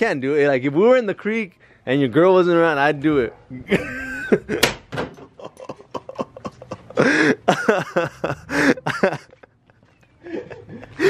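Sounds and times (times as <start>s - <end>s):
young men laughing: 3.7s - 11.0s.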